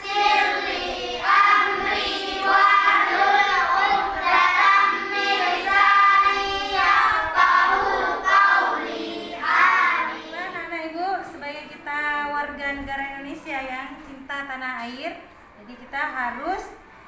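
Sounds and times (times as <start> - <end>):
group singing in unison: 0.0 - 10.4.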